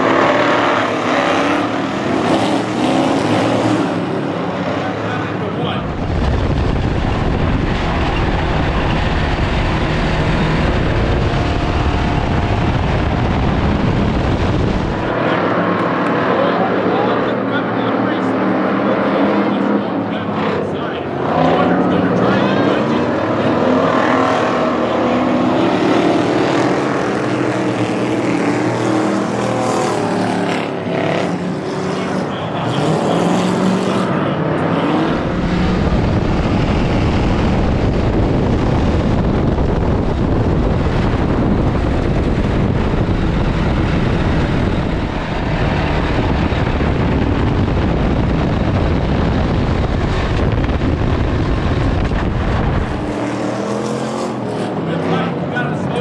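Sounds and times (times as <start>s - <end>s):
race car engines: 0.0s - 56.0s
in-car engine rumble: 5.7s - 15.2s, 35.0s - 53.0s.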